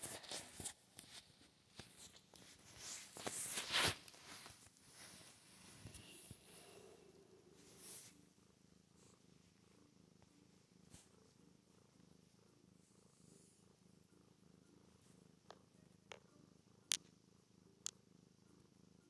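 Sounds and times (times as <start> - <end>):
cat purring: 0.0 - 19.0.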